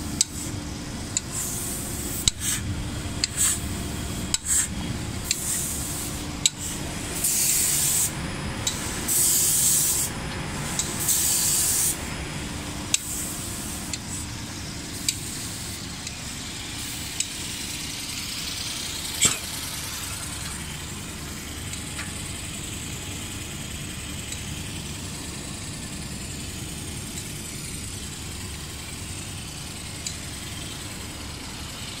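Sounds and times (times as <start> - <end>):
steady machinery noise: 0.0 - 32.0
spray guns hissing: 0.2 - 0.6, 1.2 - 12.1, 12.8 - 21.4
sharp click: 4.3 - 4.7.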